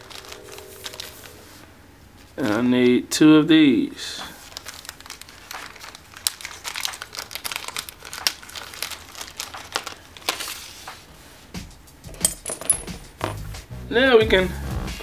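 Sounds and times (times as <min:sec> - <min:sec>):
plastic bag crinkling: 0:00.0 - 0:01.6, 0:04.4 - 0:10.9.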